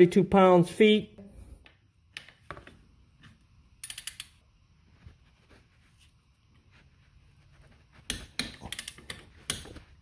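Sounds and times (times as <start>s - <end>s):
torque wrench ratchet clicking: 3.8s - 4.4s.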